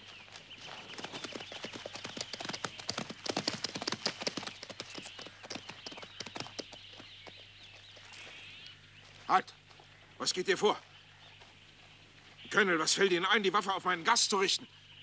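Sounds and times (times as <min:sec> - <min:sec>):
horses galloping on dirt: 0:00.0 - 0:10.1.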